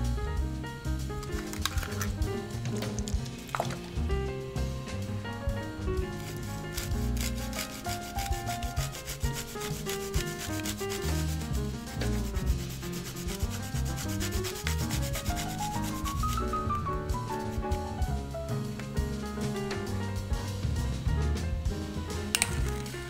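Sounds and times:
peel rasping on a hand grater: 0:06.2 - 0:16.5.

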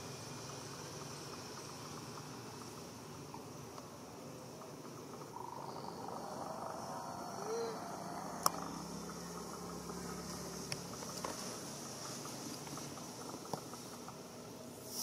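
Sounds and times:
faint low drone: 0:00.0 - 0:15.0
high insect hum: 0:00.0 - 0:15.0
rising and falling call: 0:05.3 - 0:10.0.

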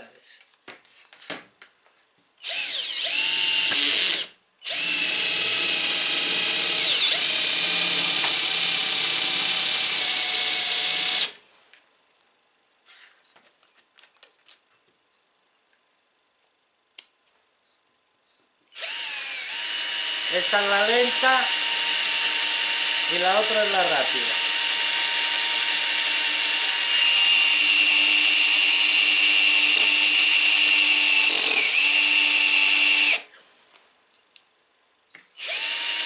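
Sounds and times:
cordless drill motor whining: 0:02.4 - 0:11.4, 0:18.8 - 0:33.3, 0:35.4 - 0:36.0.

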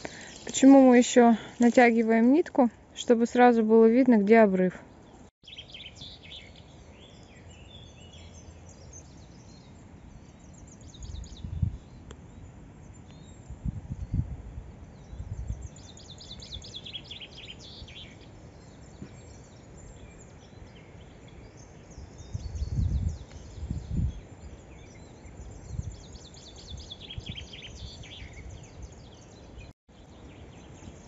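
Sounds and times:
small birds chirping: 0:00.0 - 0:13.6, 0:14.8 - 0:31.0
wind buffeting microphone: 0:10.4 - 0:16.9, 0:21.9 - 0:29.6.

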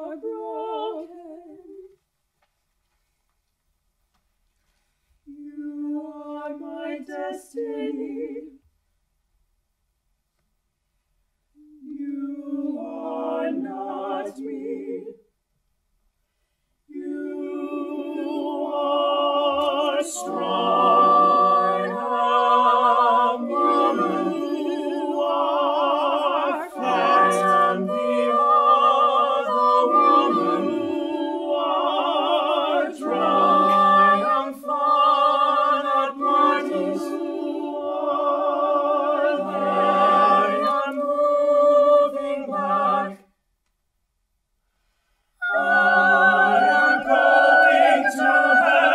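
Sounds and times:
vocal ensemble singing: 0:00.0 - 0:02.0, 0:05.3 - 0:08.6, 0:11.6 - 0:15.3, 0:16.9 - 0:43.4, 0:45.4 - 0:48.9.

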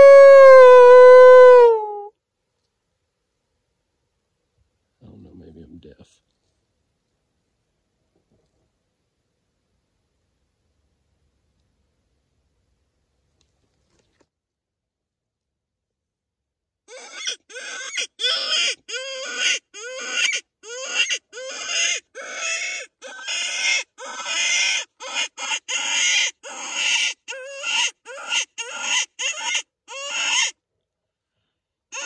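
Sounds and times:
animal distress call: 0:00.0 - 0:02.1, 0:16.9 - 0:30.6.

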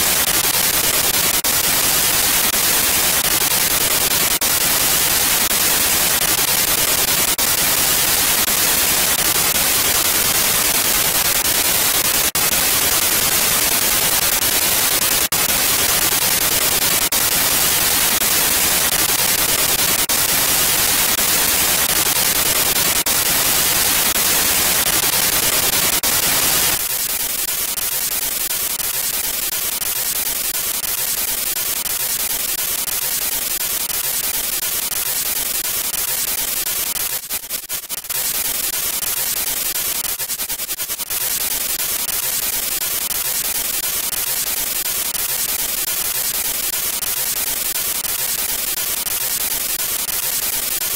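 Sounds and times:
radio static hiss: 0:00.0 - 0:31.1.

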